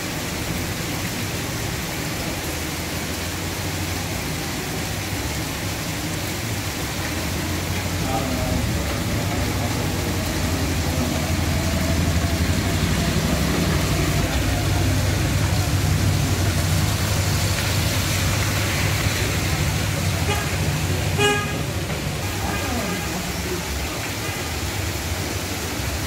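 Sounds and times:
engines passing through water: 0.0s - 26.0s
heavy rain on flooded street: 0.0s - 26.0s
horn beep: 21.2s - 21.6s.

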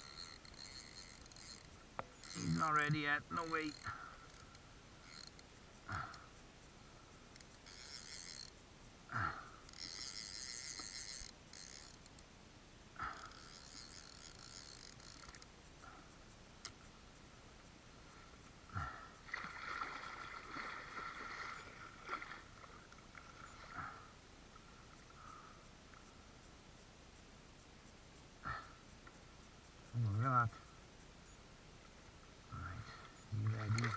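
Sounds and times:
fishing reel ratcheting: 0.0s - 6.4s, 7.1s - 8.6s, 9.2s - 12.3s, 13.0s - 16.8s.

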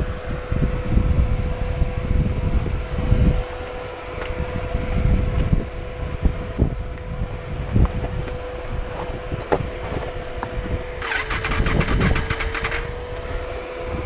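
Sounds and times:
motorcycle engine running: 0.0s - 14.0s
steady whine: 0.0s - 14.0s
wind buffeting microphone: 0.0s - 14.0s.

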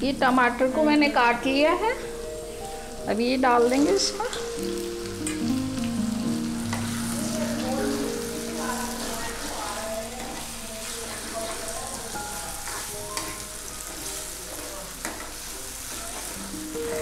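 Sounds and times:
tomatoes sizzling in hot fat: 0.0s - 17.0s
spoon stirring and scraping pan: 10.2s - 16.4s.

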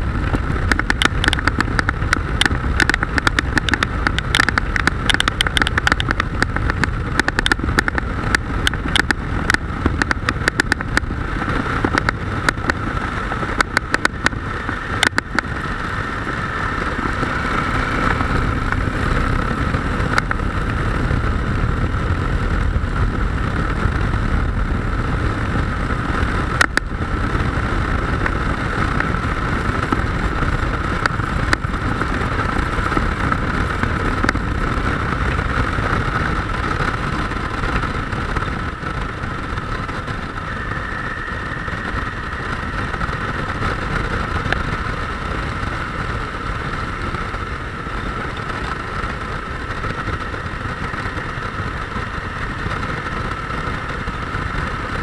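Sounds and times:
motorcycle engine hum: 0.0s - 55.0s
wind noise: 0.0s - 55.0s
sharp clicks: 0.3s - 11.1s, 13.5s - 15.6s.

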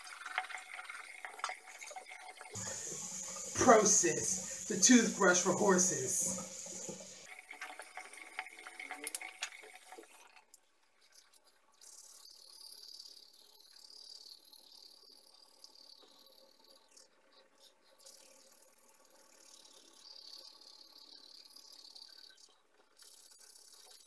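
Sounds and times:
toothbrush scrubbing teeth: 0.0s - 10.2s, 11.0s - 12.5s, 21.1s - 24.0s.

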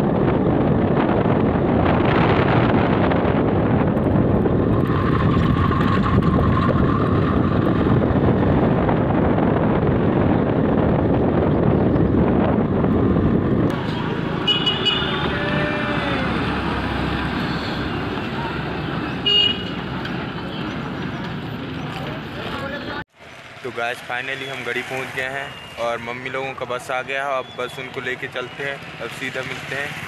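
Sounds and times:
wind buffeting microphone: 0.0s - 14.4s
road traffic: 0.0s - 30.0s.

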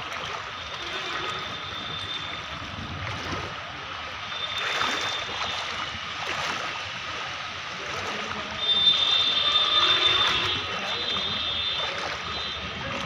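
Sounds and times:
floodwater sloshing and splashing: 0.0s - 13.0s.

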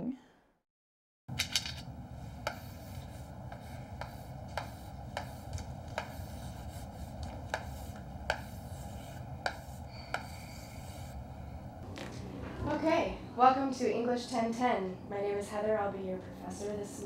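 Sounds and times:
low steady hum: 1.3s - 17.0s
chalk tapping and scratching: 2.4s - 11.2s.

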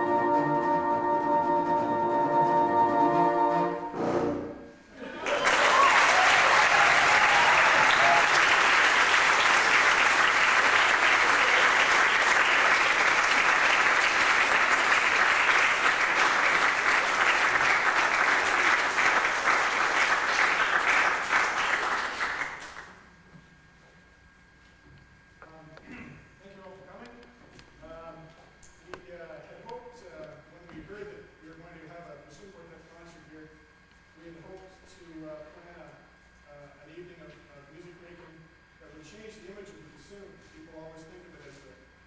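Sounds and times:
audience applauding: 5.2s - 23.0s.

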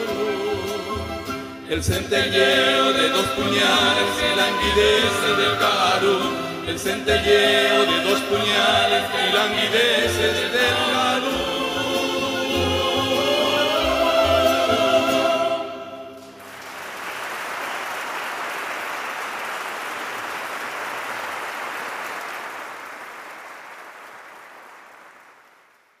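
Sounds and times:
choir and ensemble held chord: 1.7s - 16.3s
audience applauding: 16.3s - 26.0s.

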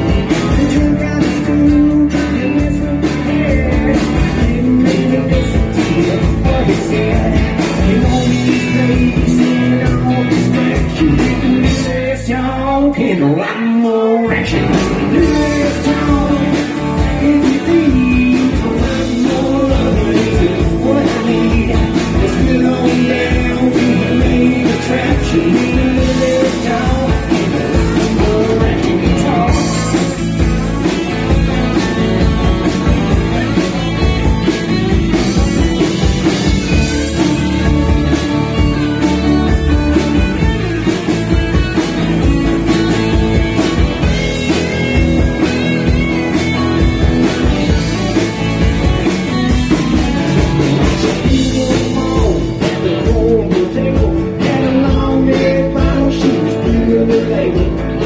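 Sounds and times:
steady drum beat: 0.0s - 12.6s, 14.4s - 58.0s
electric guitar: 0.0s - 58.0s.

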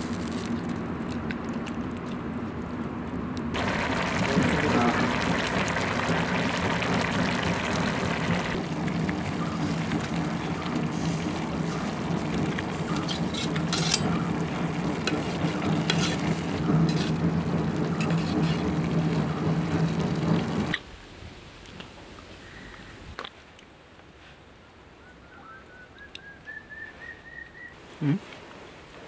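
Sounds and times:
fire crackling: 0.0s - 22.2s
pot sizzling and bubbling: 3.5s - 21.8s
metal spoon stirring pot: 12.7s - 17.2s.

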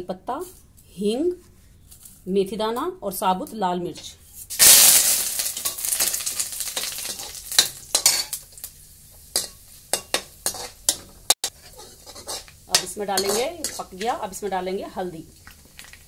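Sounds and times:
spices sizzling in hot oil: 4.4s - 16.0s.

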